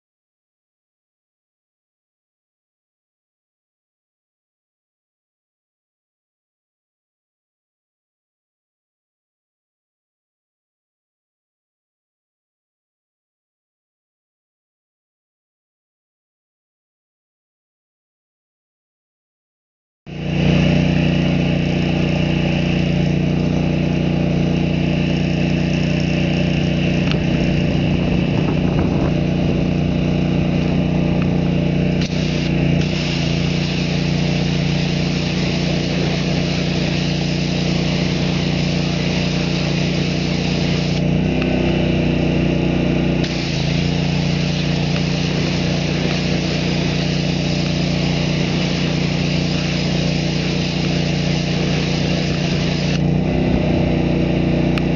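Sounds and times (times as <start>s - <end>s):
pressure washer engine running: 20.1s - 54.9s
wand spraying onto wheel: 32.0s - 41.0s, 43.2s - 53.0s.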